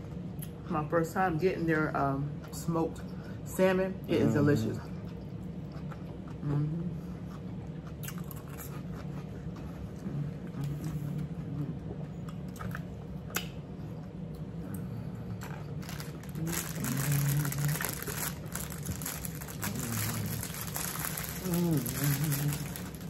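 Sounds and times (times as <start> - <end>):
chewing and crunching food: 4.8 - 23.0
plastic bag rustling: 15.8 - 23.0.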